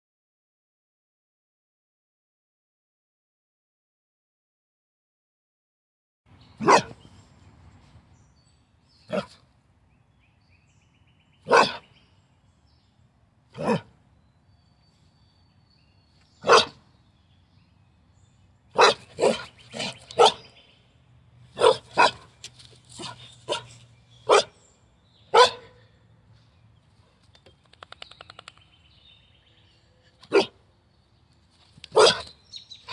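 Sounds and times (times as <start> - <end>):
dog barking: 6.6 - 7.0, 9.1 - 9.4, 11.4 - 11.9, 13.6 - 13.9, 16.4 - 16.8, 18.8 - 20.5, 21.6 - 22.3, 23.0 - 24.6, 25.3 - 25.8, 30.3 - 30.6, 31.9 - 32.9.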